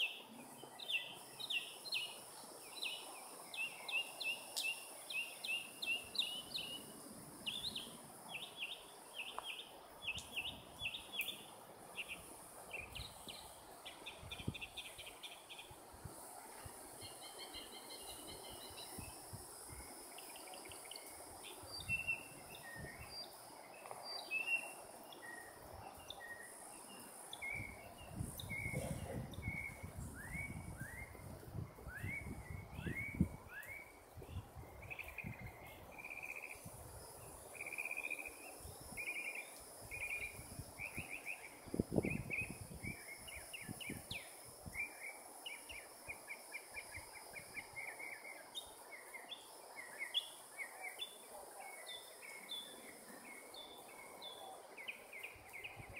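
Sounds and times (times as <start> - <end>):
insect drone: 0.0 - 55.9
birds chirping and calling: 27.3 - 30.0.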